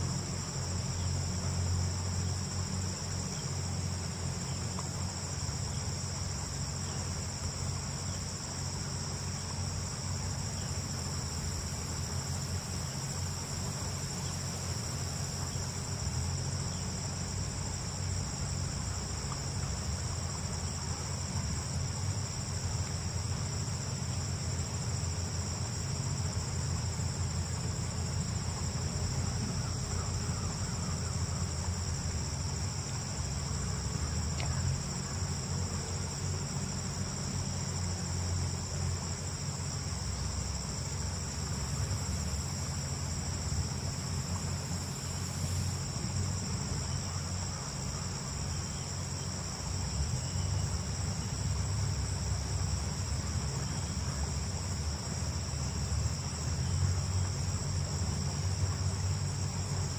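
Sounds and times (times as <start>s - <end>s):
crickets trilling: 0.0s - 59.9s.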